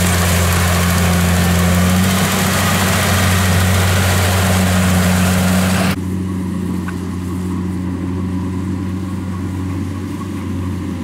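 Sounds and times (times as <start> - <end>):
loud rushing noise: 0.0 - 6.0
combine harvester engine hum: 0.0 - 11.0.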